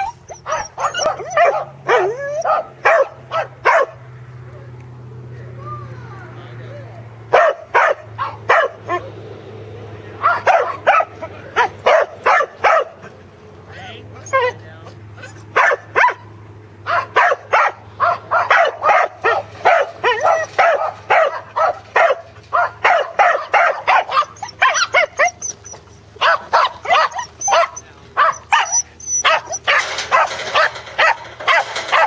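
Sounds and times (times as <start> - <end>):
dog barking and yipping: 0.0 - 4.0, 7.3 - 9.1, 10.2 - 13.1, 14.2 - 14.6, 15.2 - 32.0.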